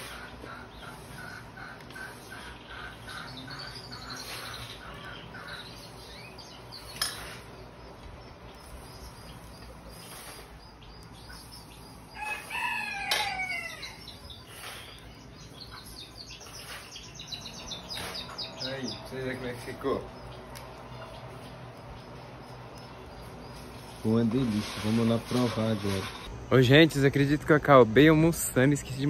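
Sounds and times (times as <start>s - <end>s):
small bird chirping: 0.0s - 25.0s
rooster crowing: 12.1s - 14.2s.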